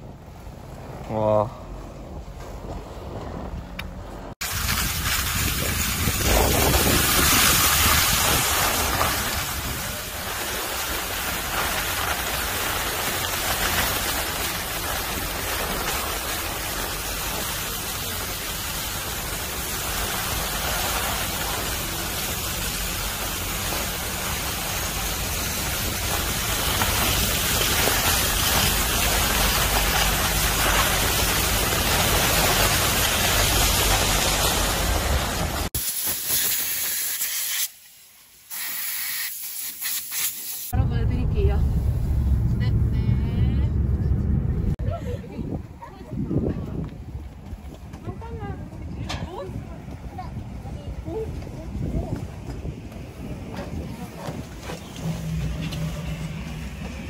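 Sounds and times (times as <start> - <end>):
wind on microphone: 0.0 - 10.3, 40.8 - 57.0
skis sliding over snow: 4.4 - 35.7.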